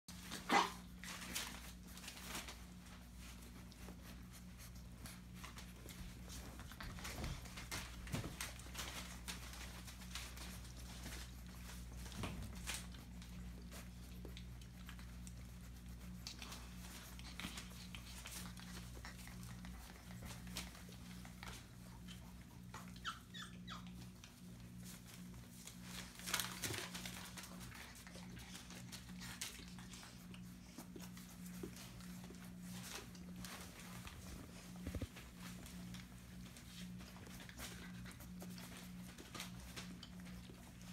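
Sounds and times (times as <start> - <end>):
puppies moving clicks and scratches: 0.1 - 40.9
steady low hum: 0.1 - 40.9
puppies squeaking: 22.5 - 24.1.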